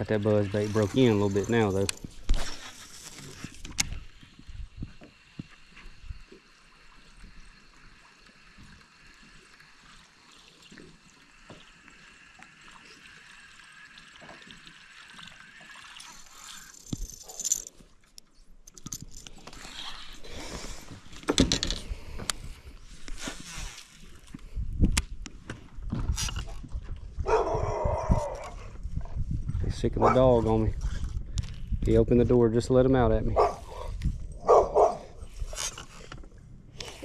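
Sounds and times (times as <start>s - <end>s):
lure churning water surface: 5.6s - 17.8s
fishing reel: 16.0s - 17.7s.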